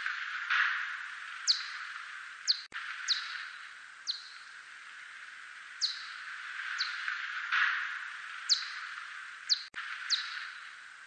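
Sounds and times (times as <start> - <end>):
steady hiss: 0.0 - 11.0
bat chirps sweeping downward: 1.5 - 1.9, 8.5 - 8.9, 9.5 - 10.7.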